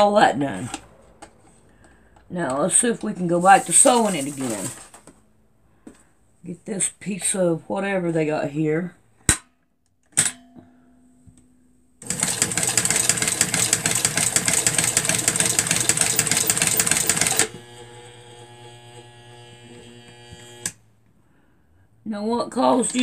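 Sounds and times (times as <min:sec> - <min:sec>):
sewing machine clatter: 0:12.0 - 0:17.6
sewing machine clicks: 0:12.0 - 0:17.6.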